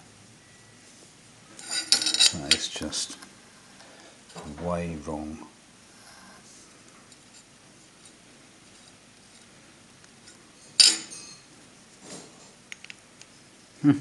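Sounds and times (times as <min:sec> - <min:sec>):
metal parts clinking: 0:01.6 - 0:02.7.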